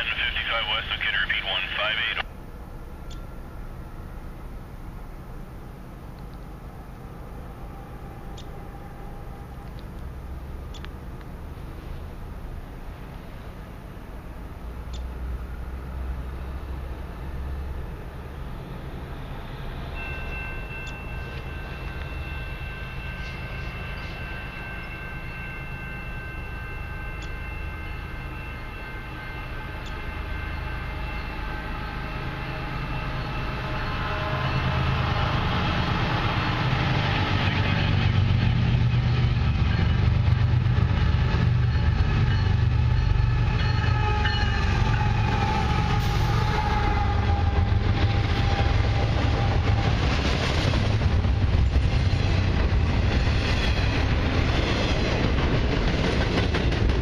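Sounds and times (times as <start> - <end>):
diesel locomotives rumbling: 0.0 - 57.0
train horn: 21.0 - 38.4, 39.7 - 50.1.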